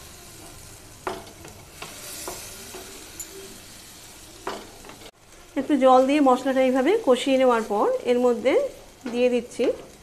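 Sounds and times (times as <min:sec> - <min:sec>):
paste sizzling in oil: 0:00.0 - 0:10.0
spatula scraping pan: 0:00.3 - 0:03.7.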